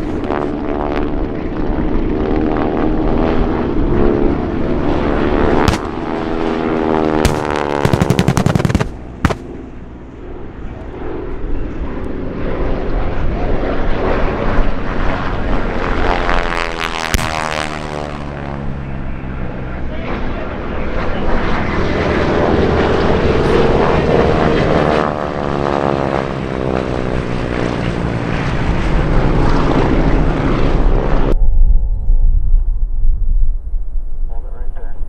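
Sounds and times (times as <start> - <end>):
propeller planes droning overhead: 0.0 - 35.0
pyrotechnic cracks: 5.7 - 6.0, 7.2 - 9.7, 17.2 - 17.4.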